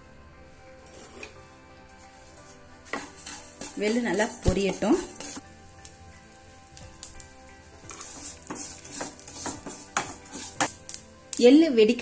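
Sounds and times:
wooden spatula stirring: 0.8 - 5.4, 7.7 - 10.8
sesame seeds sizzling and popping: 2.0 - 12.0.

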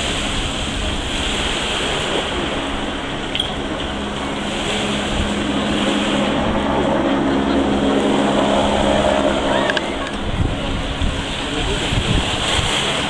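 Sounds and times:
jet ski engine running: 0.0 - 13.0
waves: 0.0 - 13.0
wind: 0.0 - 13.0.

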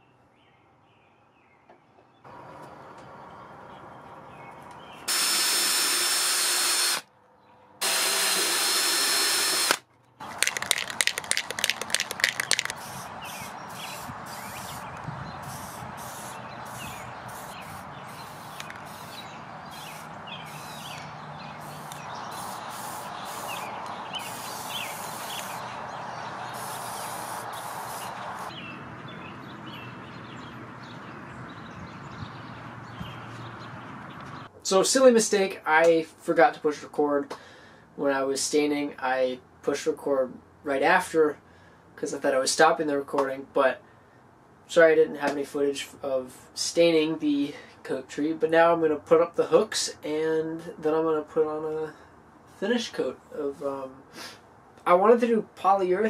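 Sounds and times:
power drill boring into steel: 5.1 - 7.0, 7.8 - 9.8
rapid clicks rattle: 10.4 - 12.8
spray paint hissing: 10.4 - 25.7, 26.4 - 28.5.

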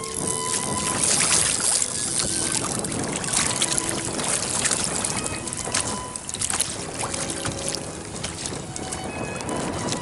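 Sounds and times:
water slapping against kayak hull: 0.0 - 10.0.

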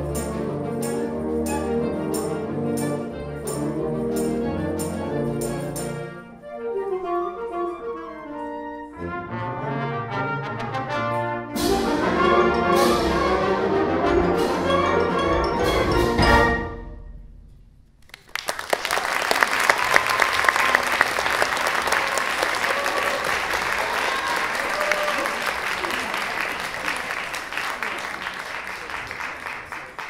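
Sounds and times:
wind band playing: 0.0 - 16.9
audience applause: 18.0 - 30.0.

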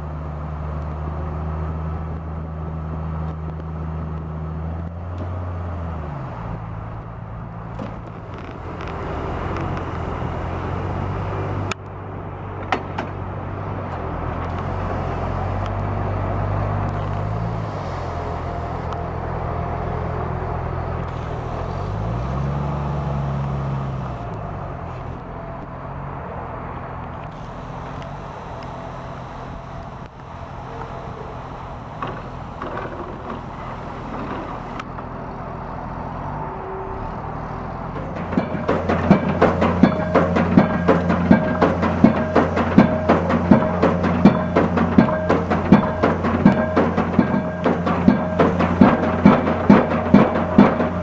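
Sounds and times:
diesel engine under load: 0.0 - 51.0
sharp knocks: 38.0 - 51.0.

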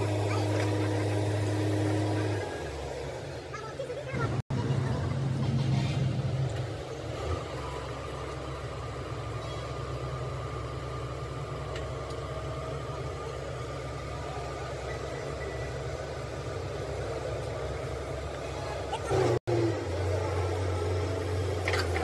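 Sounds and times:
engine idling: 0.0 - 22.0.

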